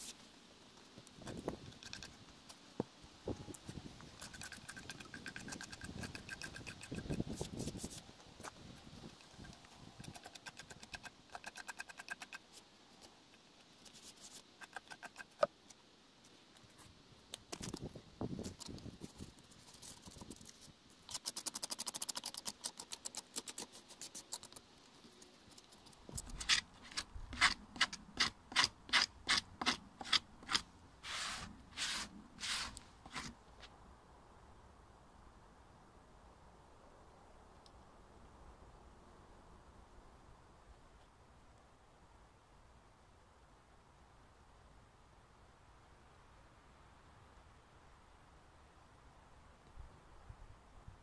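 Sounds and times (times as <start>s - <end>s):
blade scraping and cutting log: 26.1s - 33.4s.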